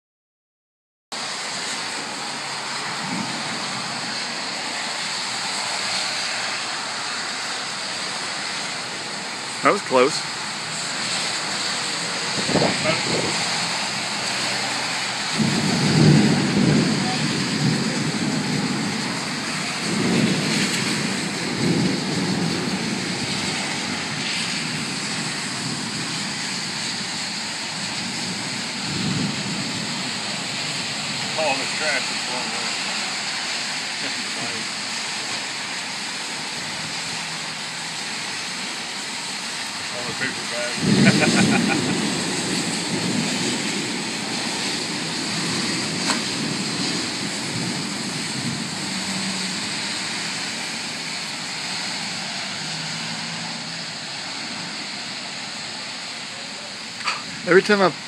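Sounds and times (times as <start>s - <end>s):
heavy rain: 1.1s - 58.0s
wind: 1.1s - 58.0s
low thunder swells: 1.4s - 5.9s, 7.7s - 33.3s, 39.8s - 54.7s.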